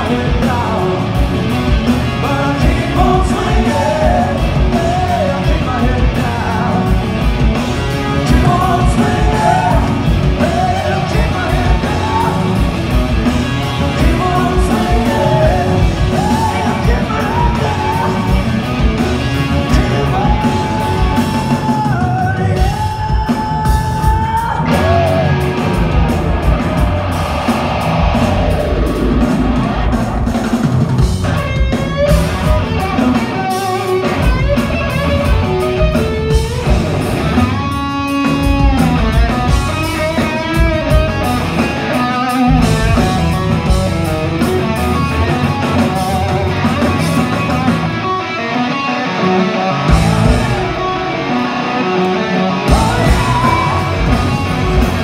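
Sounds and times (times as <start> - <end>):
live rock band: 0.0 - 55.0
electric guitar solo: 43.9 - 55.0.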